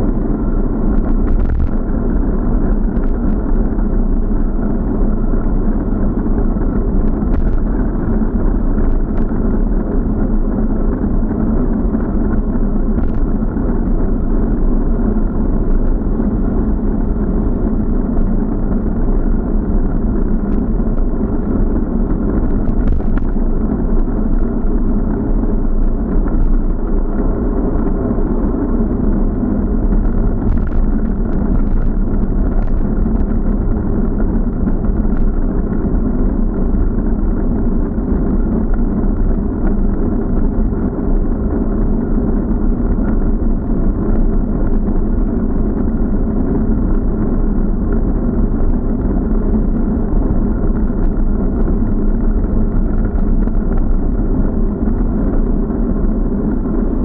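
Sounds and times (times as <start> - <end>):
muffled wind and road rumble: 0.0 - 57.0.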